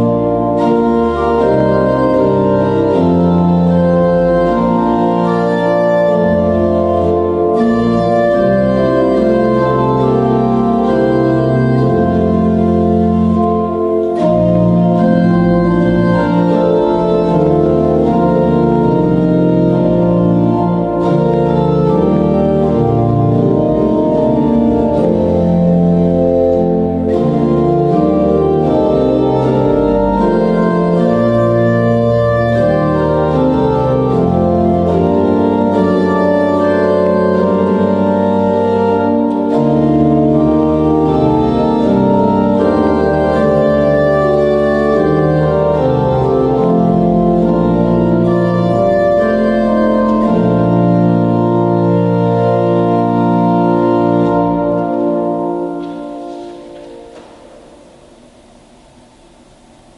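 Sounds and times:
organ playing slow chords: 0.0s - 59.9s.

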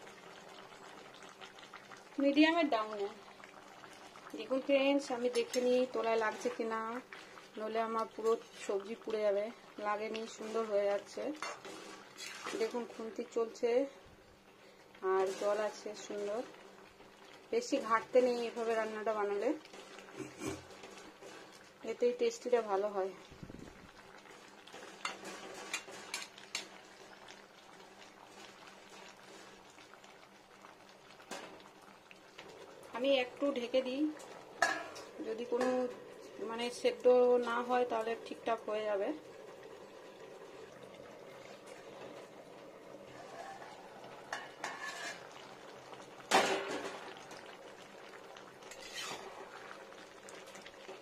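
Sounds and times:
thick curry bubbling: 0.0s - 51.0s
metal spatula scraping a pan: 10.4s - 13.1s, 15.2s - 16.4s, 24.7s - 26.6s, 44.3s - 45.4s, 48.6s - 49.6s.

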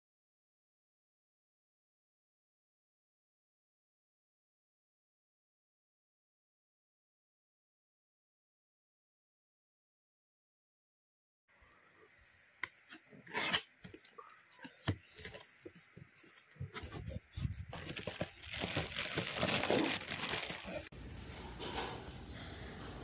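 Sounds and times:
plastic wrap crinkling and tearing: 13.9s - 20.9s.

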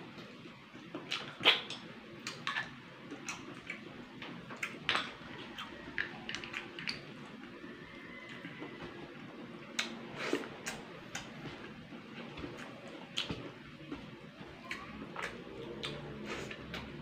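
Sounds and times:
eating clicks smacks and slurps: 1.0s - 3.8s.

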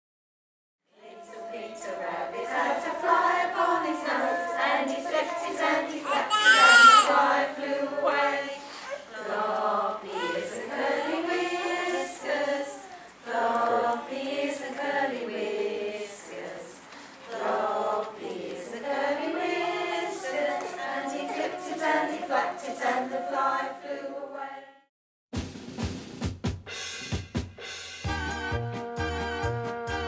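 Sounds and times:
women singing together: 0.9s - 24.8s.

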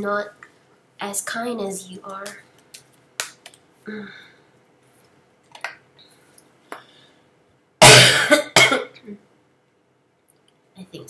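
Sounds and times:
woman coughing: 7.8s - 9.1s.

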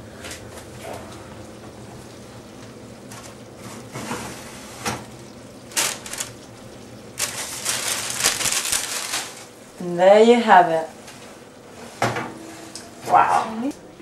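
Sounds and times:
paper crinkling: 5.7s - 6.5s, 7.2s - 9.6s.

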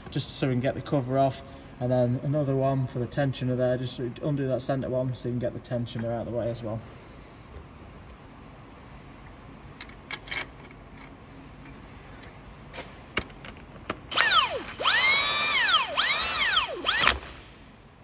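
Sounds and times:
ratchet motor whirring: 14.1s - 17.5s.

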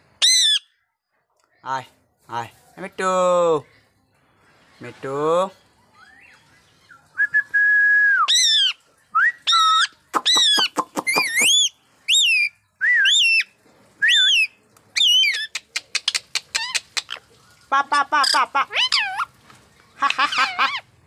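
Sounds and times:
parakeet whistling and calling: 0.2s - 0.8s, 5.9s - 7.4s, 8.2s - 17.2s, 18.2s - 19.3s, 20.0s - 20.9s.

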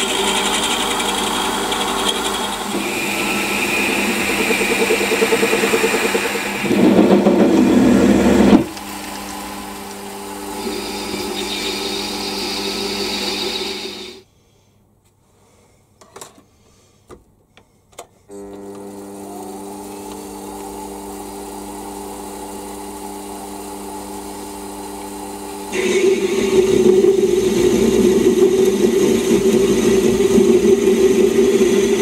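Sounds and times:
metal lathe motor hum: 0.0s - 14.2s, 18.3s - 32.0s.

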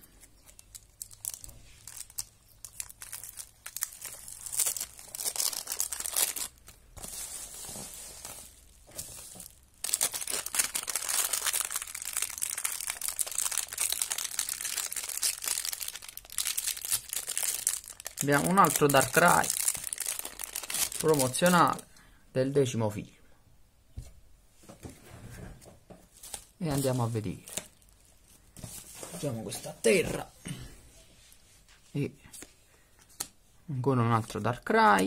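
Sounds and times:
plastic packaging crinkling: 0.1s - 21.8s, 26.1s - 29.2s.

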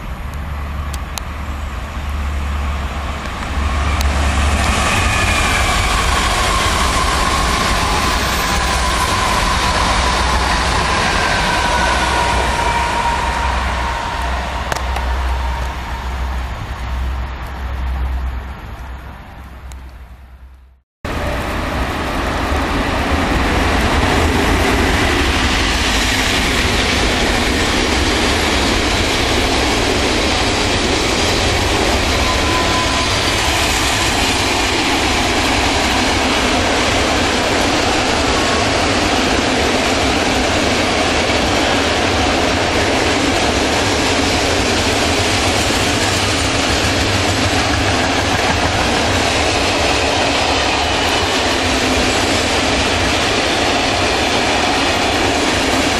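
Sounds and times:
train passing at speed: 0.0s - 20.5s, 21.1s - 55.9s.

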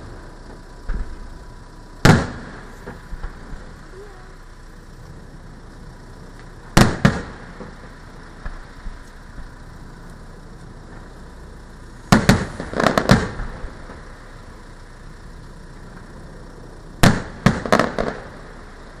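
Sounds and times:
firework shells bursting: 0.0s - 19.0s
light firework pops: 0.4s - 1.2s, 2.0s - 3.7s, 6.3s - 11.1s, 12.1s - 14.1s, 17.0s - 18.5s.

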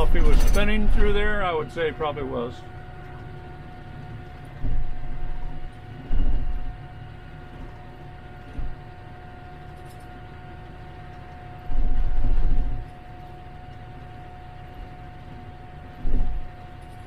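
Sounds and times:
tractor engine running: 0.0s - 6.8s
thin steady whine: 0.0s - 17.0s.

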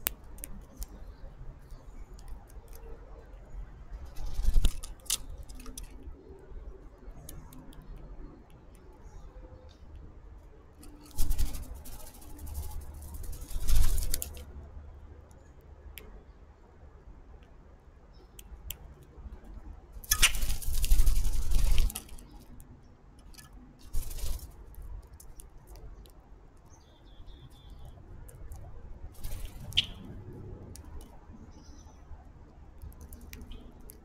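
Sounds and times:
birds pecking at wire cage: 10.8s - 14.5s, 18.7s - 26.7s, 27.4s - 31.4s.

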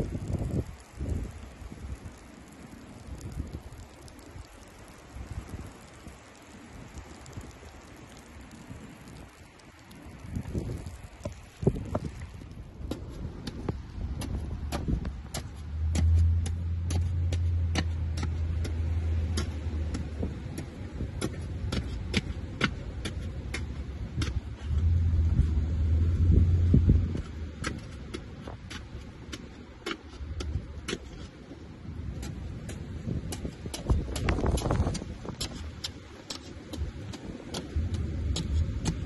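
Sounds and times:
low rumble: 10.2s - 27.7s, 36.7s - 39.0s.

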